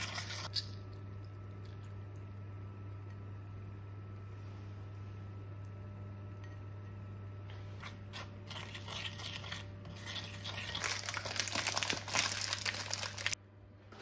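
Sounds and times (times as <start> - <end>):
baking paper crinkling: 8.5 - 13.4.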